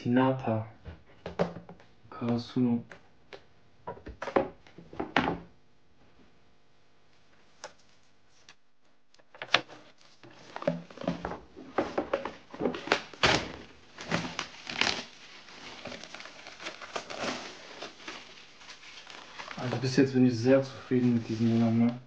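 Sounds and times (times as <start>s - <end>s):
metal posters handling noise: 9.5s - 20.0s.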